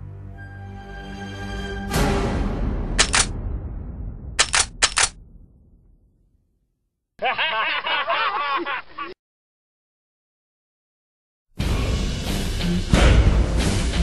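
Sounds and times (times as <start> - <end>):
music: 0.0 - 4.4, 11.6 - 14.0
young men laughing: 7.2 - 9.2.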